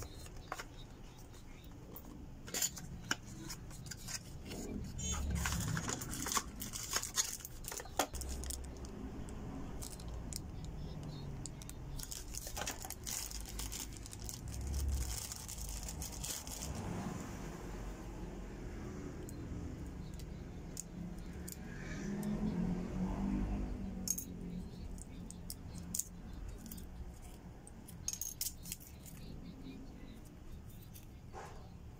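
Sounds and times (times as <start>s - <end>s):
plastic packaging crinkling: 5.1s - 8.9s, 11.5s - 16.9s.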